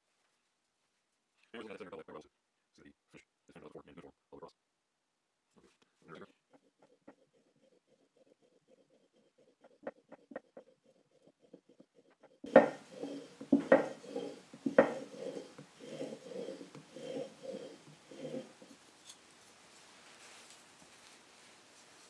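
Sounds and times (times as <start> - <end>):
blade scraping on honing film: 6.5 - 19.2.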